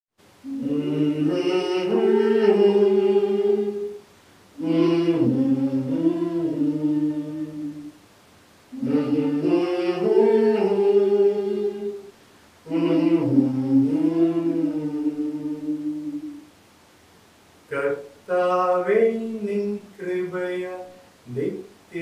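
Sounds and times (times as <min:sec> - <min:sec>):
group singing a hymn unaccompanied: 0:00.4 - 0:08.0, 0:08.7 - 0:16.5.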